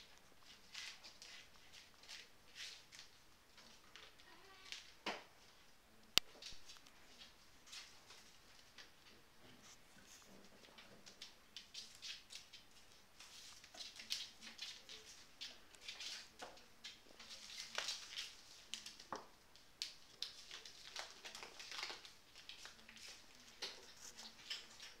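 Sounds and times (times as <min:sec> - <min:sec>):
paws skittering on tiles: 0:06.5 - 0:19.2.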